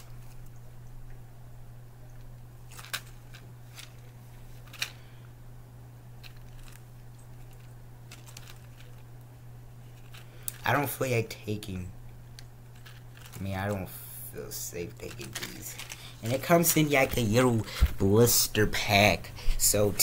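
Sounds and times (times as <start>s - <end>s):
steady low hum: 0.0s - 20.0s
blister pack clicks and crinkles: 2.7s - 5.0s, 6.2s - 10.7s, 12.3s - 13.8s, 14.9s - 17.8s.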